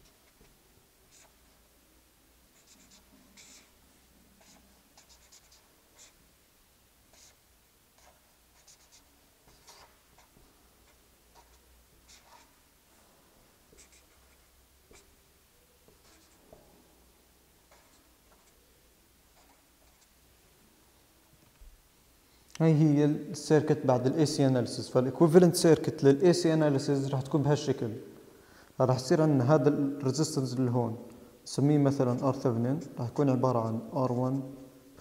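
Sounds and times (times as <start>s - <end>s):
marker pen drawing on paper: 0.0s - 1.6s, 2.5s - 3.8s, 4.4s - 6.3s, 7.1s - 12.7s, 13.7s - 15.2s, 15.8s - 16.6s, 17.6s - 18.7s, 19.3s - 20.2s.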